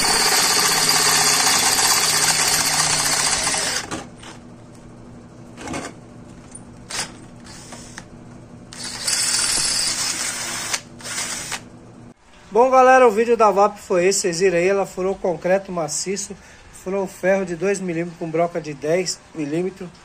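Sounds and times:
cordless drill drilling into steel: 0:00.0 - 0:03.9, 0:08.7 - 0:11.6.

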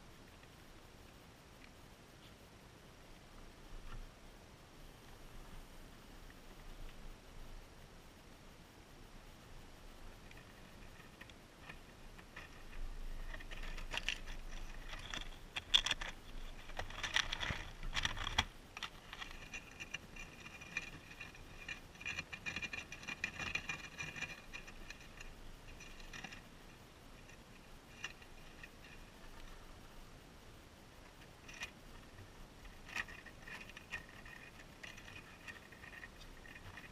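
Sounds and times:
guinea pigs rustling in bedding: 0:10.0 - 0:36.9
fast scratchy clicking: 0:10.1 - 0:29.9, 0:31.0 - 0:36.9.

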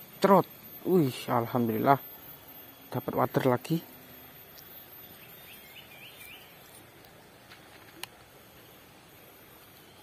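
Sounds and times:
bird chirps: 0:04.2 - 0:07.4.

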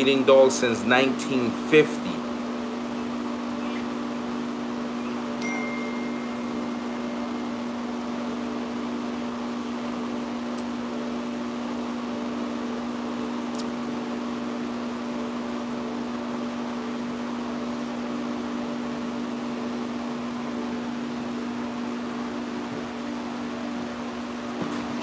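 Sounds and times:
electric motor humming: 0:02.0 - 0:11.4.

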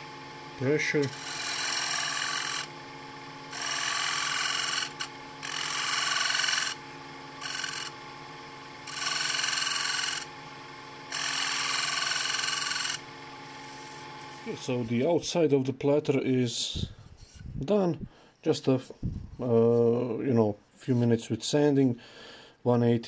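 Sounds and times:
lathe humming: 0:00.0 - 0:15.1
scraper hissing on spinning wood: 0:11.1 - 0:14.8.

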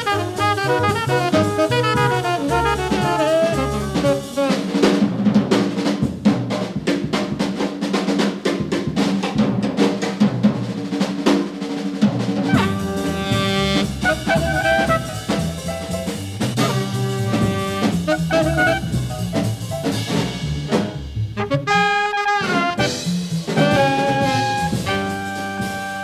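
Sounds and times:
jazz music: 0:00.0 - 0:06.6, 0:12.4 - 0:26.0
drum kit solo snare and cymbals: 0:00.0 - 0:26.0.

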